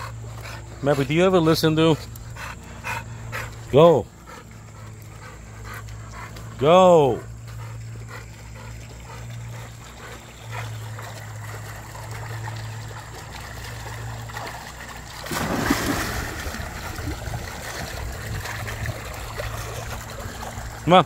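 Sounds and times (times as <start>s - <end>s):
steady low hum: 0.0s - 21.0s
water sloshing: 0.0s - 21.0s
dog splashing into pool: 10.6s - 21.0s.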